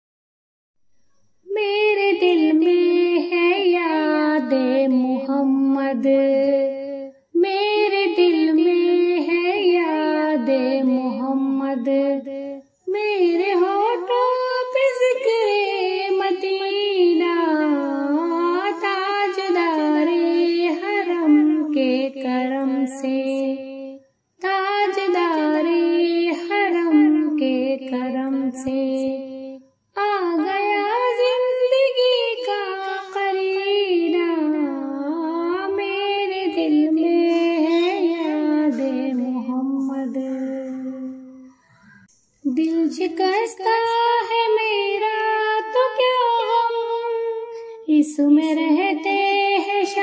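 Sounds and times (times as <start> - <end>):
woman singing unaccompanied: 1.4 - 41.8, 42.4 - 50.0.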